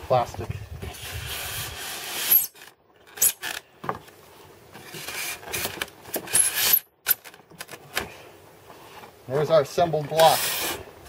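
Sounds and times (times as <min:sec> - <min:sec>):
plastic scraping against foam: 0:04.7 - 0:06.8.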